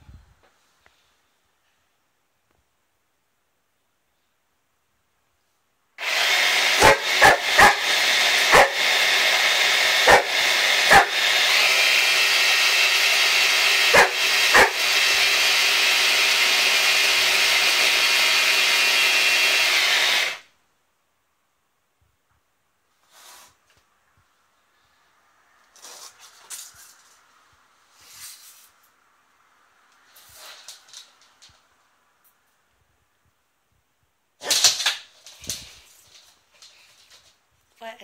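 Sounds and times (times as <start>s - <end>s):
food chopper motor whining: 6.0s - 20.5s
dog barking: 6.8s - 7.9s, 8.5s - 8.8s, 10.0s - 11.2s, 13.9s - 14.8s.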